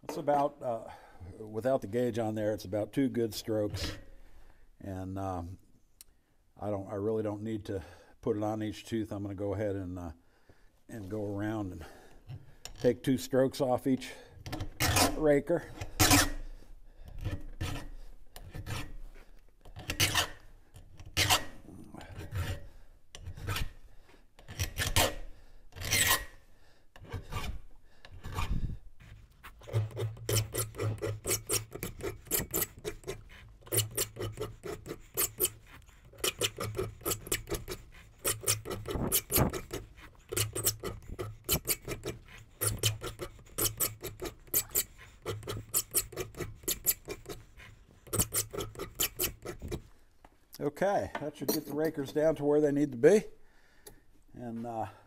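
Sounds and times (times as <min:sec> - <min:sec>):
file rasping on saw chain: 0:14.6 - 0:16.4, 0:17.2 - 0:19.0, 0:19.8 - 0:20.4, 0:21.0 - 0:23.8, 0:24.4 - 0:26.4, 0:27.0 - 0:49.9.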